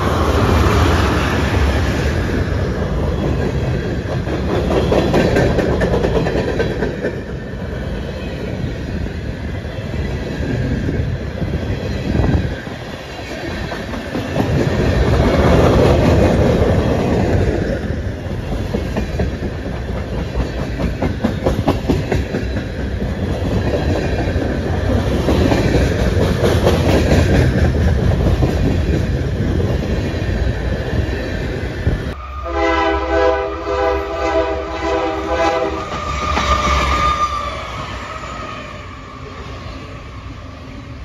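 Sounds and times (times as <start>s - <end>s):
train wheels rumbling: 0.0s - 41.0s
wheels clacking over rail joints: 2.8s - 7.8s, 12.2s - 31.6s
locomotive air horn: 32.2s - 37.5s.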